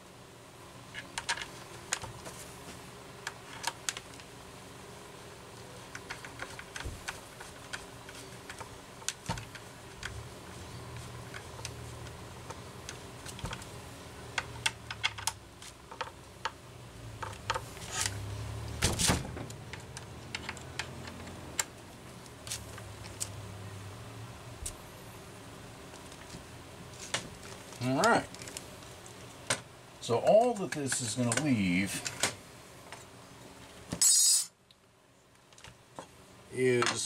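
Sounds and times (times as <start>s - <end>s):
metal parts clicking and tapping: 14.3s - 16.6s, 19.5s - 21.7s.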